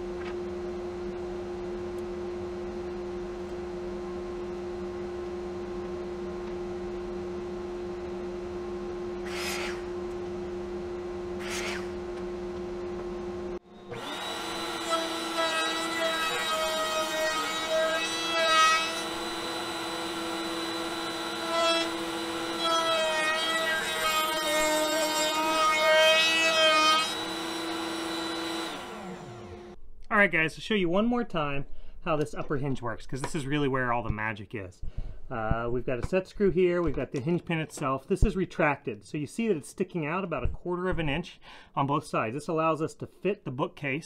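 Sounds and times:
workshop machine humming: 0.0 - 29.8
router motor whining: 9.2 - 9.9, 11.4 - 12.0, 13.6 - 29.8.

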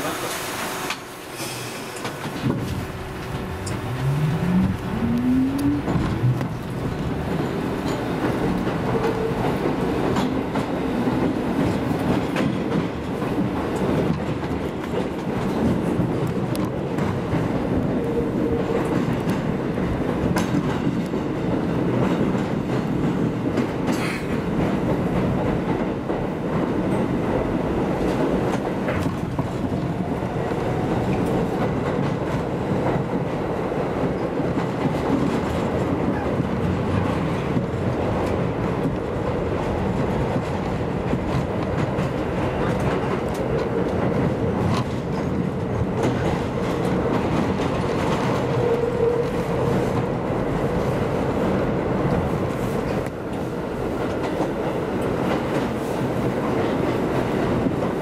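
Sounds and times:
train wheels rumbling on track: 0.0 - 58.0
steady tone: 3.0 - 6.5.

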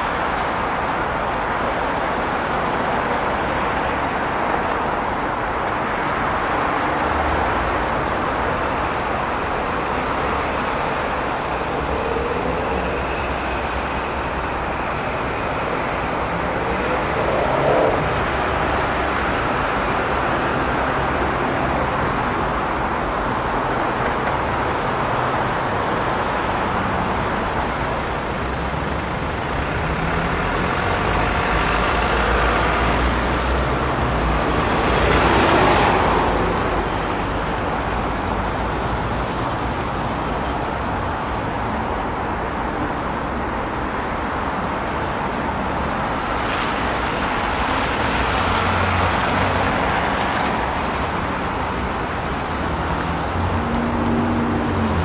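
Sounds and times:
dense highway traffic: 0.0 - 55.0
loud vehicle passing: 14.8 - 19.5, 52.5 - 55.0.

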